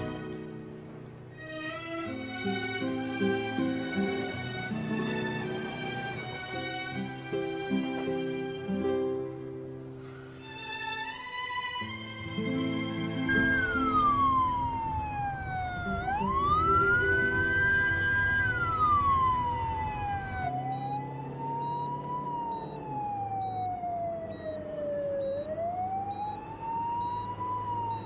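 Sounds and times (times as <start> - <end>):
ambulance siren wailing: 0.0 - 0.6, 10.2 - 28.0.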